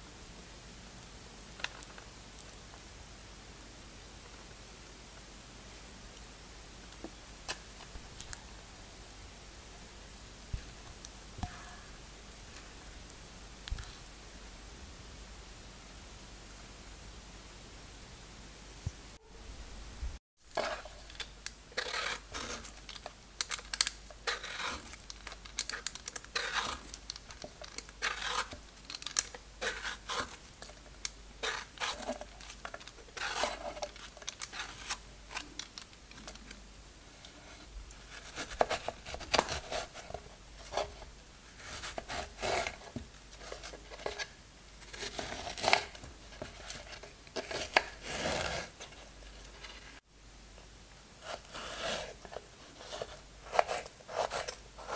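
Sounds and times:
peeler scraping pear skin: 21.8 - 22.9, 23.7 - 30.7, 31.4 - 35.6, 41.6 - 48.8.

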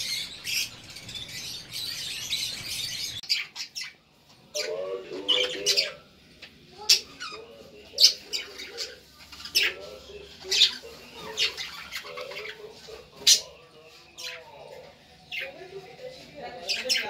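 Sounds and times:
budgerigars chirping: 0.0 - 4.0, 4.6 - 6.0, 6.9 - 14.6, 16.6 - 17.0
budgerigars warbling: 0.0 - 4.0, 4.6 - 6.0, 6.9 - 13.6.

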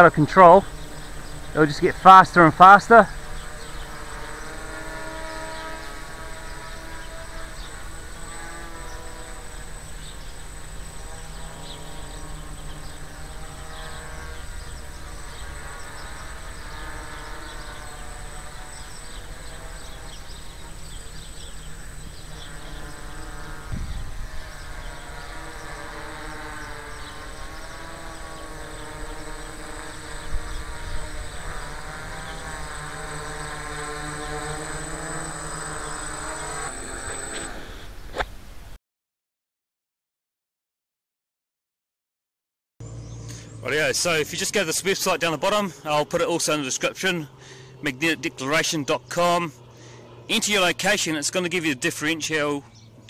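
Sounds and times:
quadcopter motors buzzing: 0.0 - 38.7, 42.8 - 53.0
wind rumble on microphone: 22.1 - 25.4, 30.1 - 31.9.

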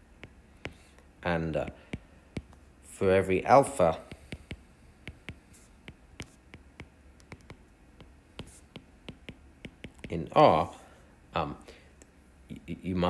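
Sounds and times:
low steady hum: 0.0 - 13.0
stylus tapping on glass screen: 4.1 - 10.2.

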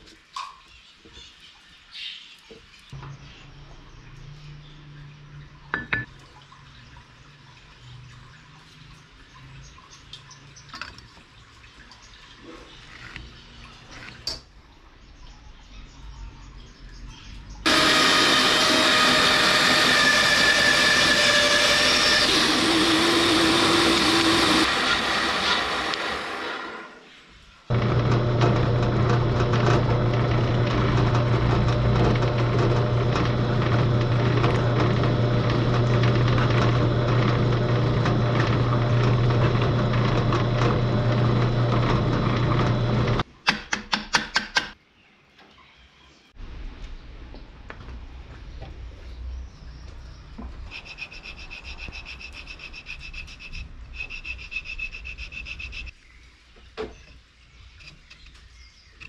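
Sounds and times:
drill press boring into wood: 17.7 - 26.9, 27.7 - 43.2.

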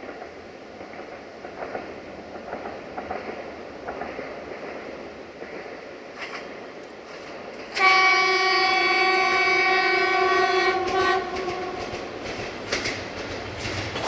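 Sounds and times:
diesel railcar running noise: 0.0 - 14.0
train horn blast: 7.7 - 12.1.

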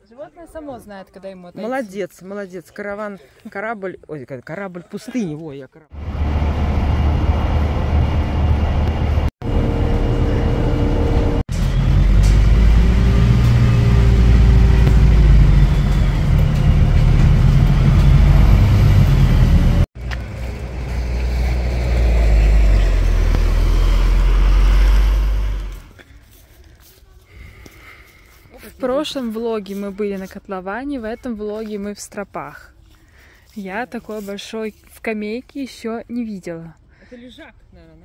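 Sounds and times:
vehicle rumbling: 5.9 - 28.6.

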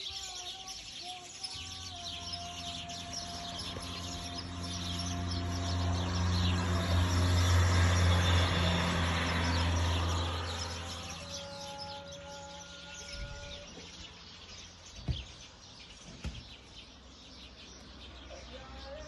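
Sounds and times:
small birds chirping: 0.0 - 19.0
motor vehicle passing: 1.6 - 14.3.

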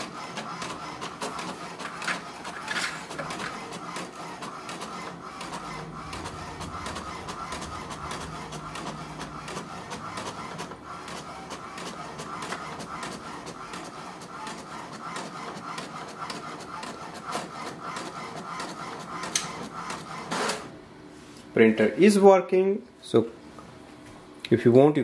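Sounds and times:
inkjet printer whirring and clicking: 0.0 - 20.8
low hum: 5.6 - 10.9.

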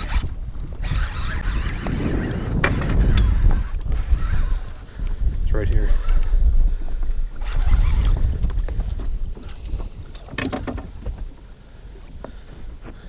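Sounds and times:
wind buffeting microphone: 0.0 - 13.0
water lapping against boat: 6.0 - 13.0.

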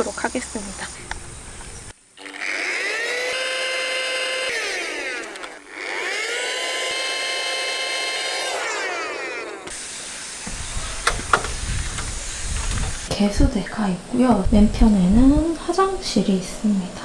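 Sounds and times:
electric air pump whining: 0.0 - 13.2.

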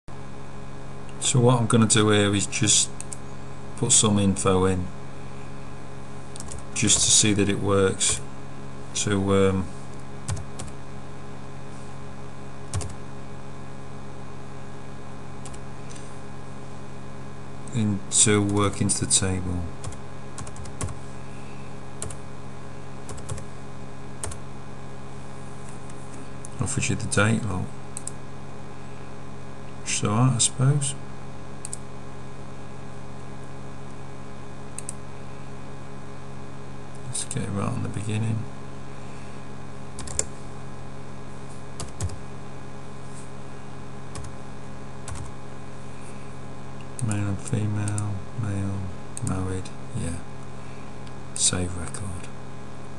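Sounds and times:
steady low hum: 0.1 - 52.9
keyboard typing: 6.3 - 7.2, 10.3 - 10.8, 12.7 - 13.0, 19.8 - 21.0, 22.0 - 22.2, 23.1 - 23.5, 24.2 - 24.4, 40.0 - 40.3, 41.8 - 42.2, 44.1 - 44.3, 45.0 - 45.3
keyboard keystrokes: 40.0 - 40.3.

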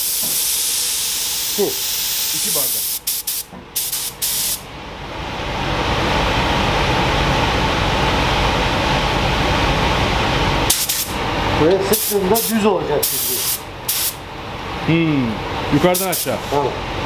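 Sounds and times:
paint spray gun hissing: 0.0 - 4.6, 10.7 - 11.2, 11.9 - 14.2.

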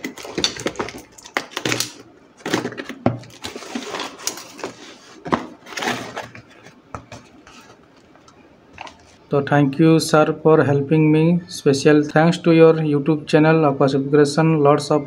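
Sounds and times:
paper rustling and ripping: 0.0 - 6.5.

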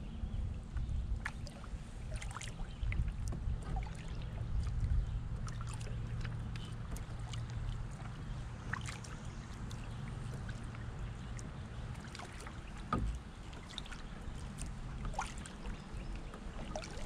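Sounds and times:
steady low rumble: 0.0 - 17.0
water splashing and dripping: 1.2 - 17.0.

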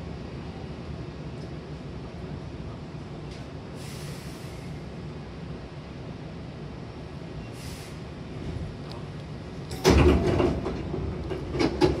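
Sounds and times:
short hiss: 3.8 - 4.8, 7.5 - 8.1
sharp door rattles: 9.7 - 12.0
sliding doors opening with thud: 9.7 - 12.0.

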